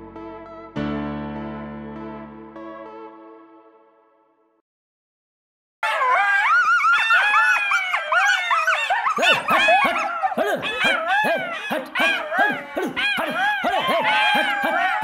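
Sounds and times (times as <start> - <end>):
jackals howling and yipping: 5.8 - 15.0.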